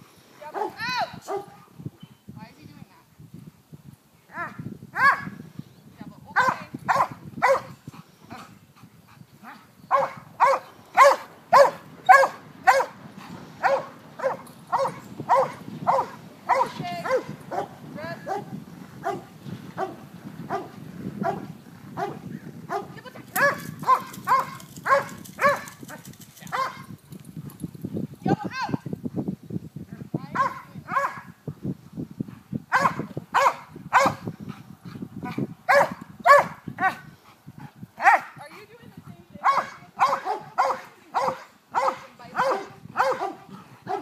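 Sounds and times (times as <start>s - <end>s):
dog barking: 0.6s - 1.6s, 4.4s - 5.3s, 6.4s - 7.7s, 9.9s - 13.0s, 13.6s - 17.7s, 18.3s - 19.2s, 19.8s - 21.4s, 22.0s - 25.8s, 26.5s - 26.9s, 30.4s - 31.3s, 32.7s - 34.2s, 35.7s - 37.0s, 38.0s - 38.4s, 39.4s - 44.0s.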